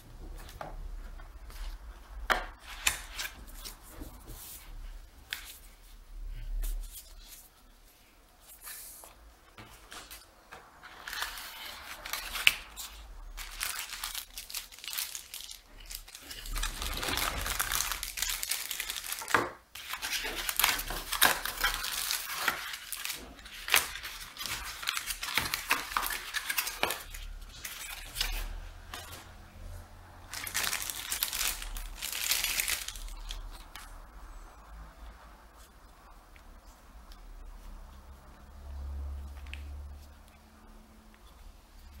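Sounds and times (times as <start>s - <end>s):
plastic bags crinkling: 11.0s - 29.2s, 30.3s - 33.6s.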